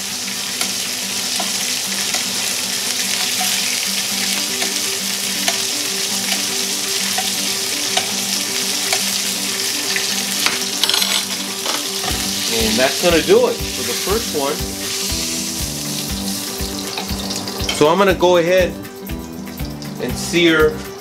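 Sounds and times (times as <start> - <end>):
chicken sizzling in hot oil: 0.0 - 21.0
spoon clicking against pan: 1.4 - 2.3, 5.4 - 5.7, 7.1 - 8.2, 8.9 - 9.2.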